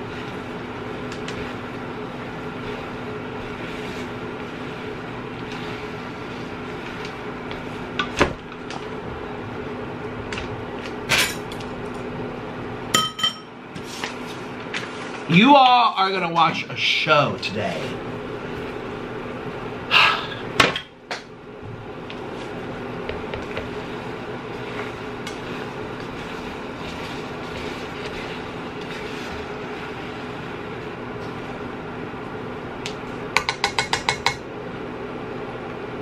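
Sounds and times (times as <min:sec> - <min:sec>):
chopsticks stirring noodles: 0:00.0 - 0:11.0, 0:22.1 - 0:31.8
steady background hum: 0:00.0 - 0:36.0.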